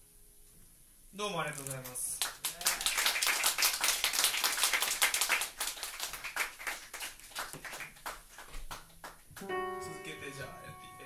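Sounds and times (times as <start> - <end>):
audience applauding: 2.2 - 9.5
instrument holding a chord: 9.4 - 11.0.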